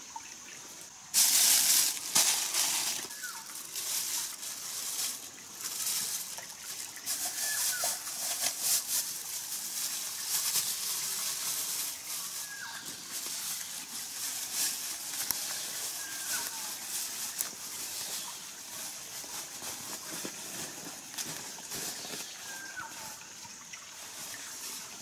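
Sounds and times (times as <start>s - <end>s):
plastic bag crinkling: 1.2s - 23.0s
bird calls: 2.9s - 3.6s, 7.2s - 8.1s, 12.3s - 13.2s, 15.4s - 16.8s, 21.7s - 23.3s.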